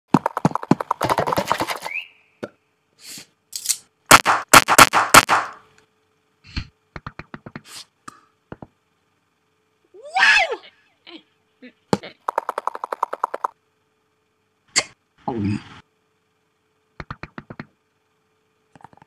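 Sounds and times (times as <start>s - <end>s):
fast run of taps: 0.1s - 1.9s, 12.2s - 13.5s, 17.0s - 17.7s.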